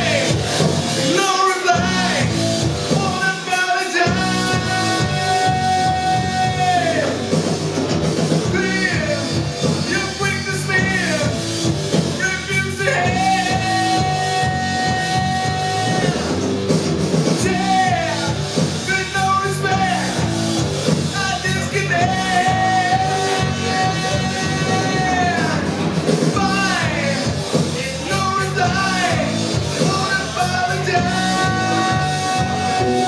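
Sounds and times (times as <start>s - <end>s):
electric bass: 0.0s - 3.4s, 4.0s - 33.0s
drums: 0.0s - 33.0s
man singing long notes: 1.0s - 7.3s, 12.2s - 16.4s, 17.4s - 20.2s, 21.2s - 33.0s
electric guitar: 4.0s - 33.0s.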